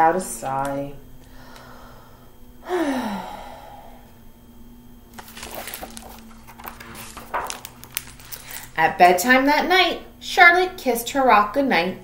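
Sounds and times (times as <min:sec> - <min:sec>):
woman sighing: 0:01.4 - 0:04.0
book pages rustling: 0:05.1 - 0:08.8.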